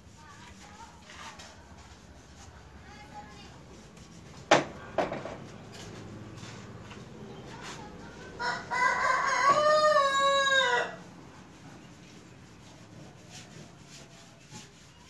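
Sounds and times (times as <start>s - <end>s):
rooster crowing: 8.4s - 11.1s.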